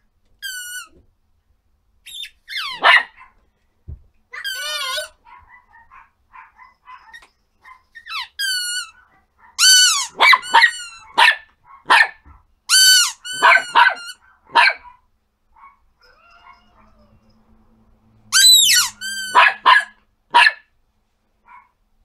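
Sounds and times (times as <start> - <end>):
dog yelping: 2.1 - 3.4, 4.3 - 17.4, 18.3 - 20.6
high-pitched dog yapping: 2.1 - 3.4, 4.3 - 17.2, 18.3 - 20.7
dog whimpering: 4.4 - 5.2, 16.0 - 17.4.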